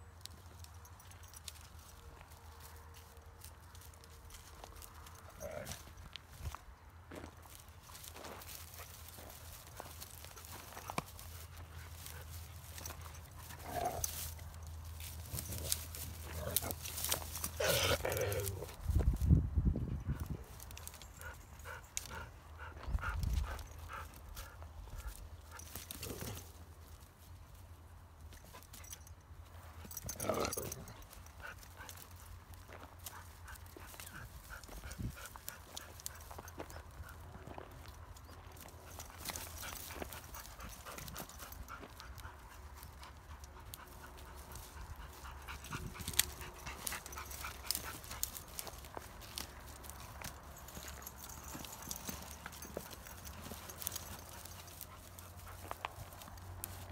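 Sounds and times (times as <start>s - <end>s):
paws scraping on ground: 0.0s - 56.9s
dogs panting: 7.1s - 18.8s, 19.9s - 26.6s, 28.3s - 56.9s
dogs scuffling: 38.2s - 56.9s.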